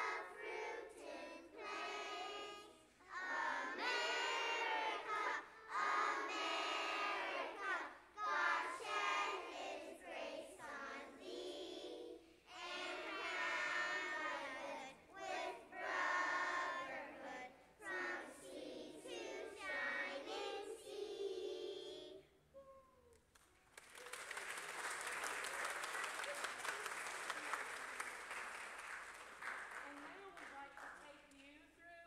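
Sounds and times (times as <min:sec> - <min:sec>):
young children singing: 0:00.0 - 0:22.3.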